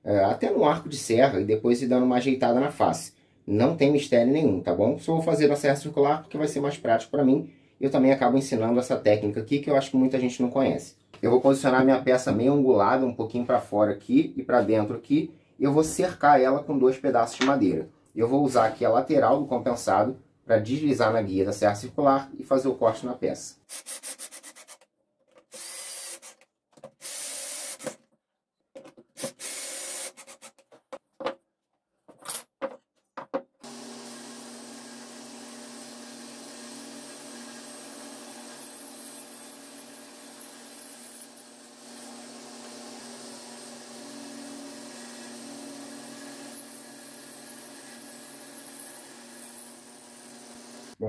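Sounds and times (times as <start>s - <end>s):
cordless drill driving screws: 25.5s - 26.4s, 27.0s - 28.0s, 29.2s - 30.6s, 33.6s - 51.0s
table saw cutting wood: 33.6s - 51.0s.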